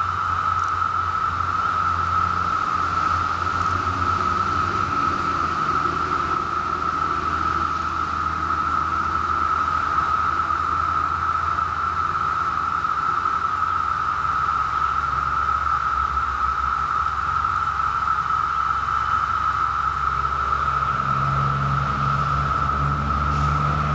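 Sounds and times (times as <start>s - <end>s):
cicadas droning: 0.0s - 23.9s.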